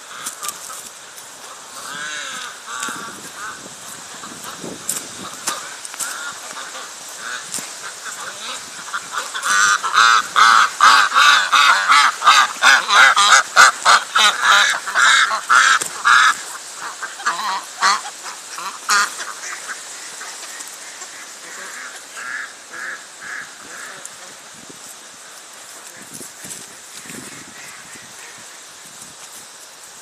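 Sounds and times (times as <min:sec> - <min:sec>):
ducks quacking: 0:00.0 - 0:28.9.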